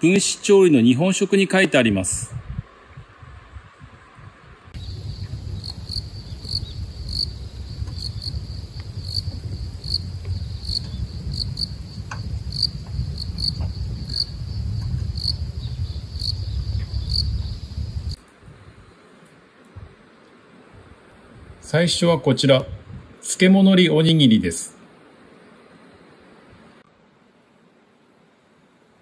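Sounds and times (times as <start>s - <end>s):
insect chirping: 4.8s - 18.2s
low rumble: 4.8s - 18.2s.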